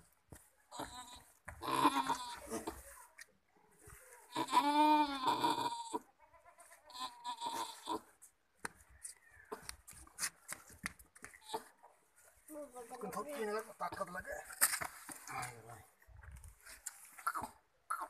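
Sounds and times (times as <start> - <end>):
goat bleating: 0.7 - 2.8, 4.3 - 8.1.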